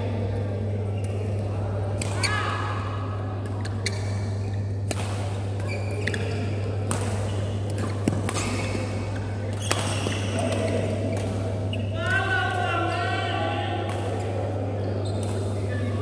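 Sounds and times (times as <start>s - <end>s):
rackets hitting shuttlecock: 3.4s - 12.6s, 13.9s - 14.4s, 15.0s - 15.6s
shoes squeaking on court: 5.5s - 10.5s.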